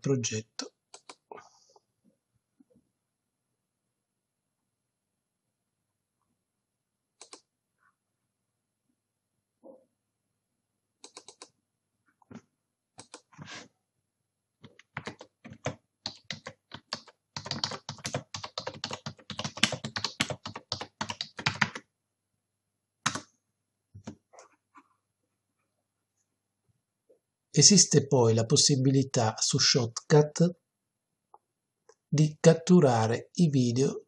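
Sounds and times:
separate clicks: 0.9s - 1.2s, 7.2s - 7.5s, 11.0s - 11.6s, 13.0s - 13.3s
keyboard typing: 0.9s - 1.3s, 7.2s - 7.5s, 11.0s - 11.6s, 13.0s - 13.4s, 14.6s - 21.9s, 23.0s - 23.3s.

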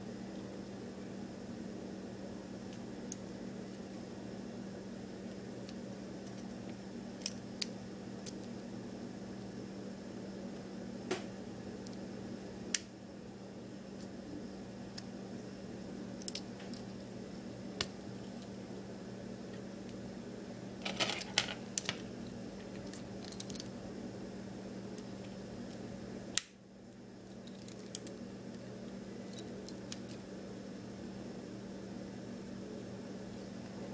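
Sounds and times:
keys jangling: 23.2s - 23.7s.

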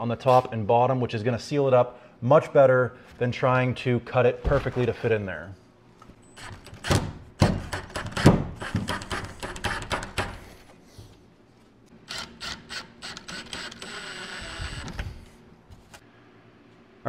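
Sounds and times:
cordless driver clicking and whirring: 12.0s - 15.1s.

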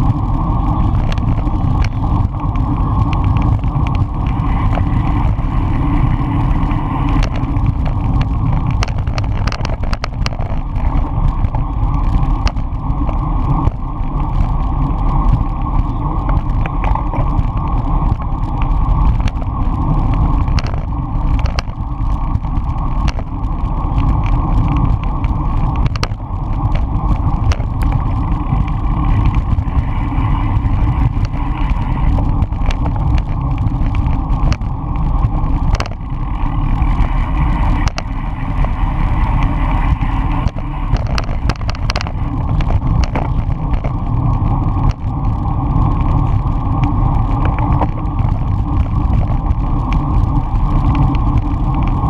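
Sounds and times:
bicycle tyre and road rumble: 0.0s - 52.0s
wind rushing over microphone: 0.0s - 52.0s
short clicks and rattles: 7.1s - 11.6s, 40.4s - 44.0s.

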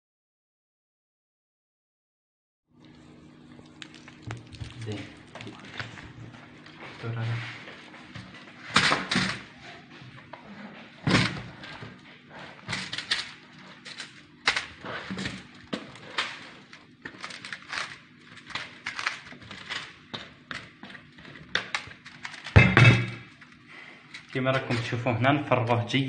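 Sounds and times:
paper and foil crinkling: 3.6s - 9.6s, 11.1s - 22.6s.

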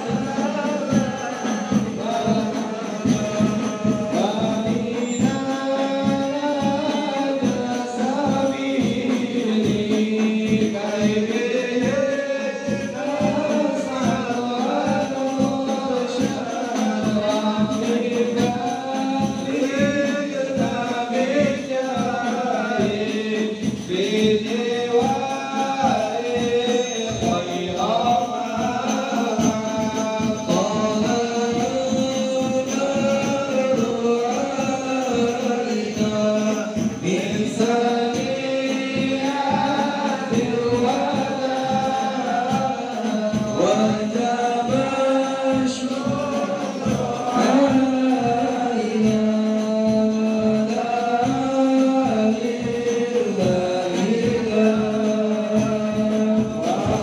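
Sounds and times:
lead voice on microphone: 0.0s - 57.0s
men singing devotional chant: 0.0s - 57.0s
steady drum beat: 0.0s - 57.0s.

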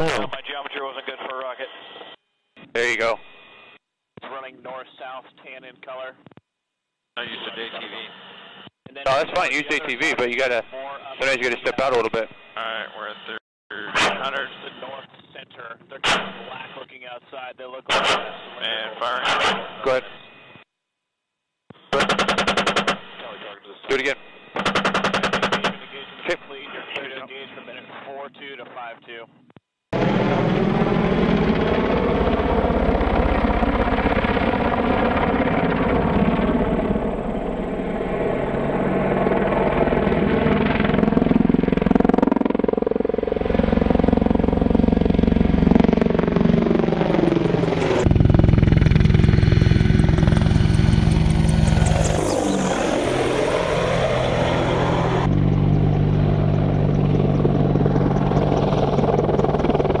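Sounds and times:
helicopter rotor beating: 21.9s - 23.2s, 24.6s - 26.0s, 30.0s - 60.0s
turboshaft engine whine: 30.0s - 60.0s.

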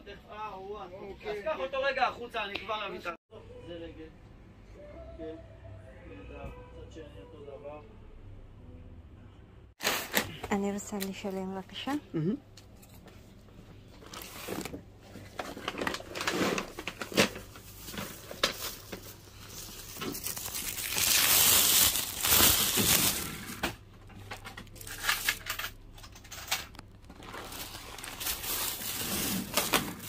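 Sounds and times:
bags crinkling and rustling: 14.0s - 30.0s.

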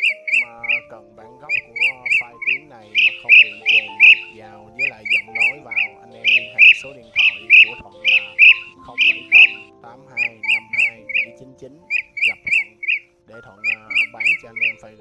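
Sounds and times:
bird giving short sharp calls: 1.6s - 9.7s.

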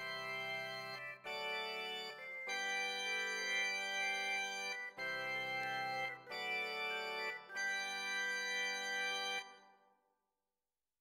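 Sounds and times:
organ playing held chords: 0.0s - 9.4s.

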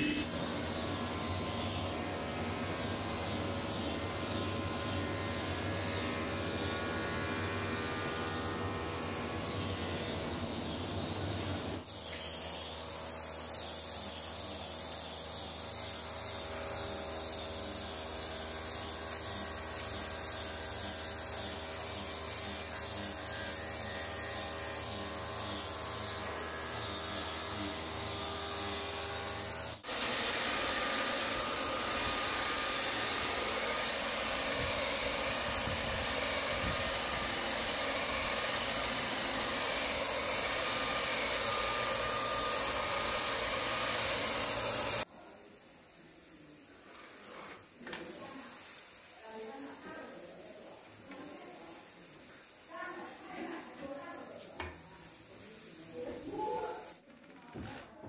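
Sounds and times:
angle grinder sanding wood: 0.0s - 45.1s
belt sander hissing: 0.0s - 45.1s.

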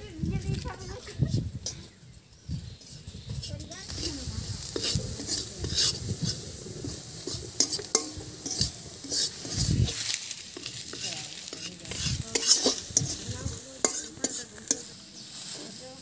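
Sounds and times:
metal spatula scraping wok: 2.6s - 16.0s
fish frying in oil: 3.8s - 15.4s.

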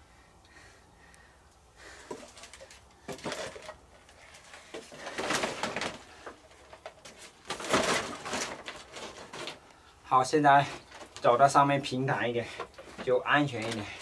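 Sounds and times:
plastic rustling and crinkling: 1.9s - 14.0s.

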